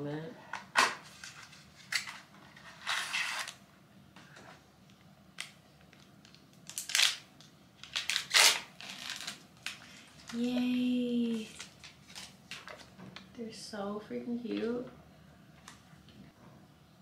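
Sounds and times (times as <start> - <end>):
paper packaging rustling: 1.0 - 3.6, 7.8 - 13.0
paper sachet ripping: 6.6 - 10.6.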